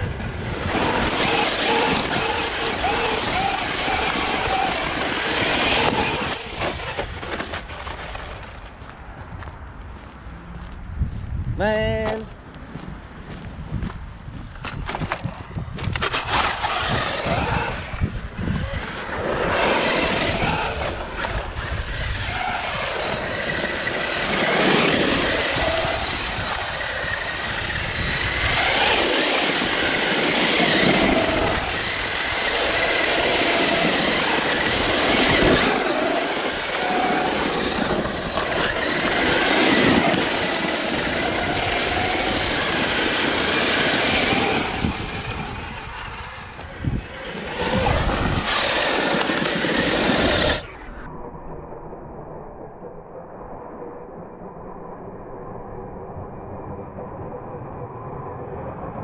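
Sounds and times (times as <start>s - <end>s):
rc truck motor whine: 0.0s - 8.5s, 15.8s - 51.0s
tyres scrabbling on gravel: 0.5s - 10.2s, 14.4s - 18.0s.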